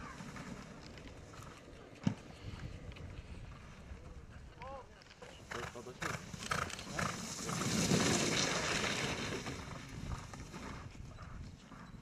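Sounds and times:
horse hoofbeats in snow: 0:05.2 - 0:12.0
snowboard scraping snow: 0:05.5 - 0:10.9.

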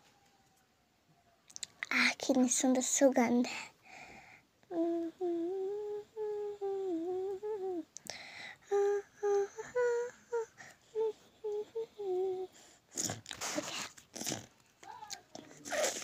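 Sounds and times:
girl humming a tune: 0:04.6 - 0:14.0.

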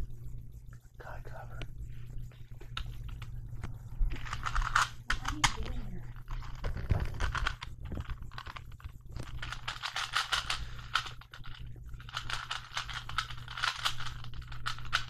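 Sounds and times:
puzzle cube clicking as twisted: 0:06.5 - 0:15.0.

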